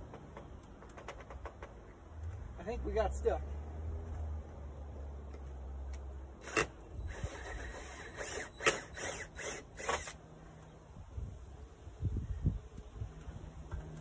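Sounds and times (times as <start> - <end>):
drill bit rasping into wood: 6.4 - 10.2.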